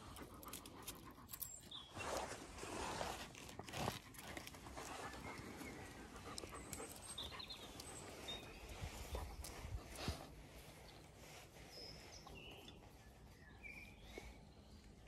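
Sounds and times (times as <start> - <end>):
dog panting: 0.0 - 1.7, 3.8 - 10.8.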